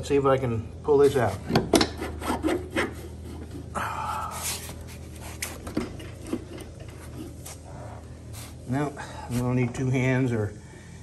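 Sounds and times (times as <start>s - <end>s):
man breathing hard: 3.6s - 5.0s, 8.0s - 9.3s, 10.6s - 11.0s.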